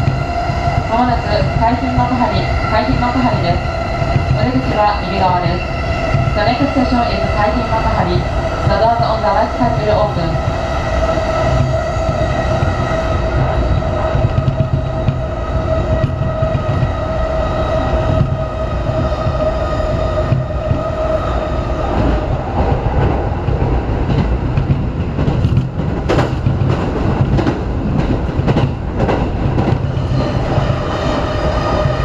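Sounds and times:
train low rumble: 0:00.0 - 0:32.0.

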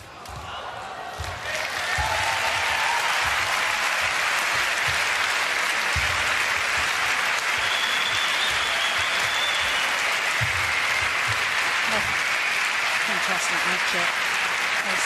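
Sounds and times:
footsteps on court mat: 0:00.3 - 0:12.2
crowd applause: 0:00.5 - 0:15.0.

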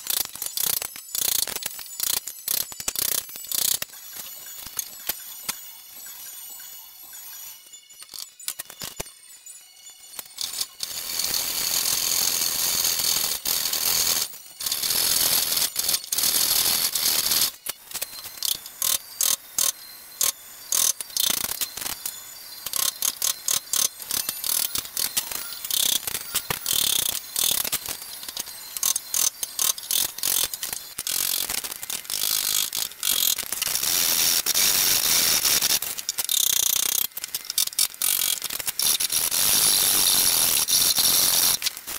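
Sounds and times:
small clicks: 0:13.0 - 0:41.9.

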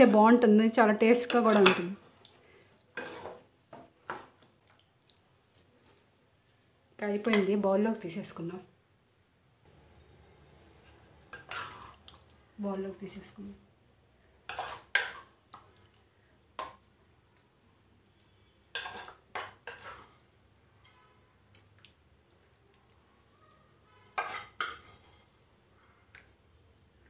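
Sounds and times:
wooden spatula scraping cookware: 0:03.0 - 0:04.4, 0:10.8 - 0:12.0, 0:14.5 - 0:15.4, 0:18.7 - 0:20.2, 0:24.0 - 0:25.5.

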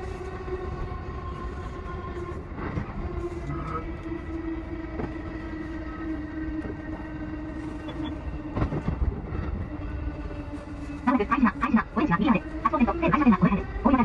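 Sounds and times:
train wheels rumbling on track: 0:00.0 - 0:14.0
steady hum: 0:10.0 - 0:14.0.

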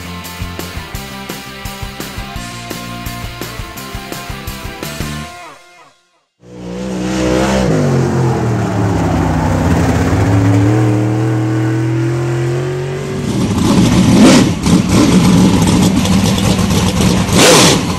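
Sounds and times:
harsh choppy engine revving: 0:06.4 - 0:17.9
race car engine: 0:06.4 - 0:17.9.

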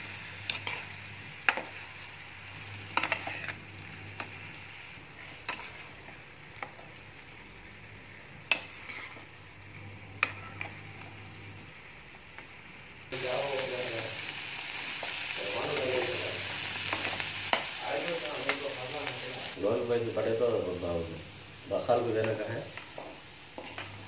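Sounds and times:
vegetables sizzling in frying pan: 0:00.0 - 0:24.0
spatula scraping and knocking pan: 0:02.9 - 0:03.6, 0:05.2 - 0:06.8, 0:08.5 - 0:09.3.

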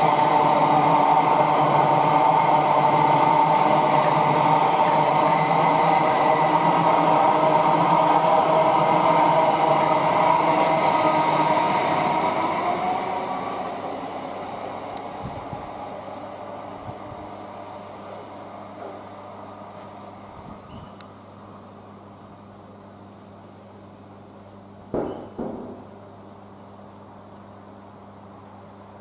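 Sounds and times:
train wheels rumbling on rail: 0:00.0 - 0:19.1
train whine: 0:00.0 - 0:21.7.

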